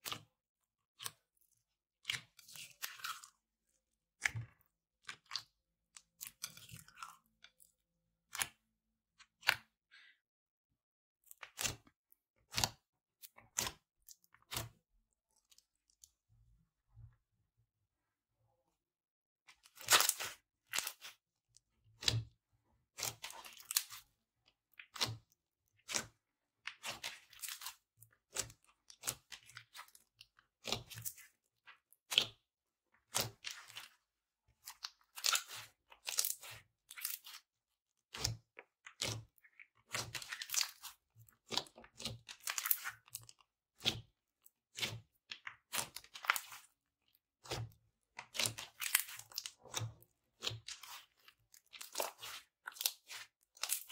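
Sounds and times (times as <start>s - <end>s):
slime crackling and popping: 48.3s - 53.9s.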